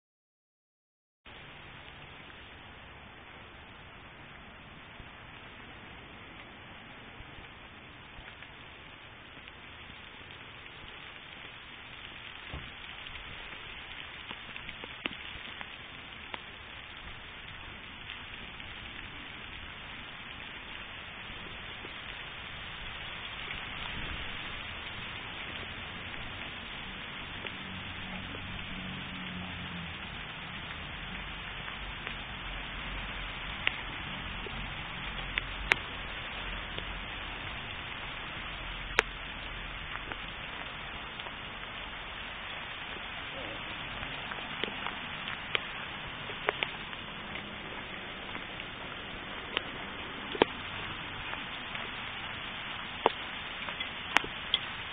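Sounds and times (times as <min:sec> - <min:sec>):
hail hissing on pavement: 0:01.3 - 0:54.9
hailstones clicking: 0:07.3 - 0:54.9.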